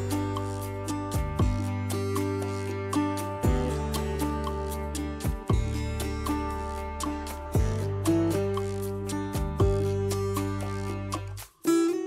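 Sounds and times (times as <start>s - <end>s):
background music with beat: 0.0s - 12.0s
deep thumps: 5.3s - 5.8s.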